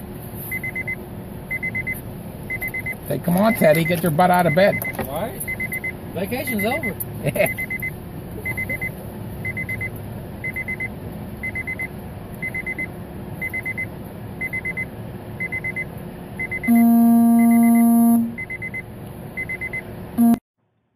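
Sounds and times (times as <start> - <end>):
diesel engine rumble: 0.0 - 20.4
warning alarm beeping: 0.5 - 18.8, 19.4 - 20.4
vehicle horn blast: 16.7 - 18.4, 20.2 - 20.4.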